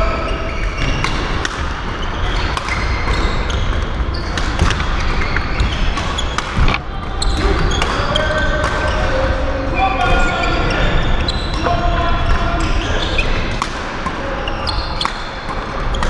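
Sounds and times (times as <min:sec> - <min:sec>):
rackets hitting shuttlecock: 0:00.9 - 0:09.1, 0:15.0 - 0:16.0
shoes squeaking on court: 0:02.0 - 0:09.0, 0:10.0 - 0:11.6.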